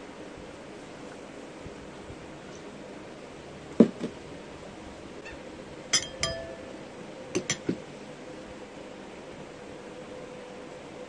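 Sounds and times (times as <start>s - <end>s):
tableware clinking: 6.0s - 6.8s.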